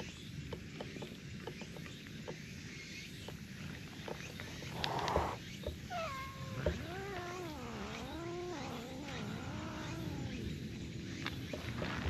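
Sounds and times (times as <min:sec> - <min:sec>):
cat yowling: 0:05.2 - 0:10.3.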